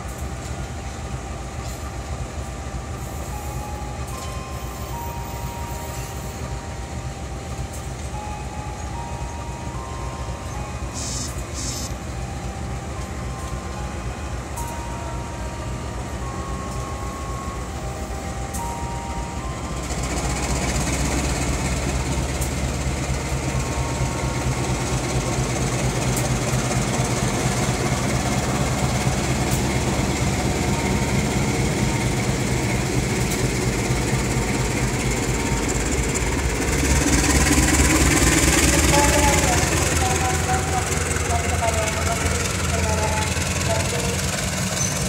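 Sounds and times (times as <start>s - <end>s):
locomotive engine humming: 0.0s - 45.0s
train coaches rumbling: 0.0s - 45.0s.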